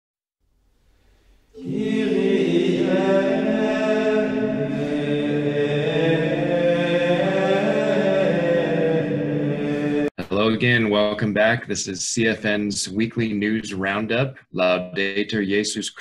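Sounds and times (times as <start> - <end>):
voices singing slow chant: 1.6 - 10.1.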